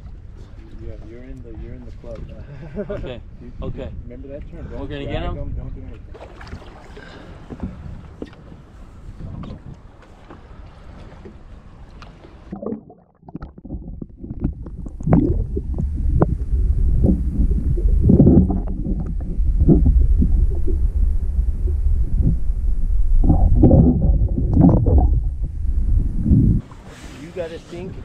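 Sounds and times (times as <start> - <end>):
wind and sea noise: 0.0 - 28.0
muffled underwater rumble: 7.0 - 26.9.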